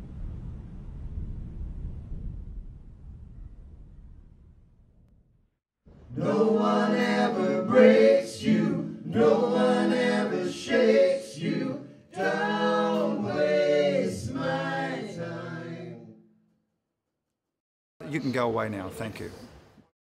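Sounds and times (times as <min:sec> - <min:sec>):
men singing a capella: 0:06.1 - 0:16.2.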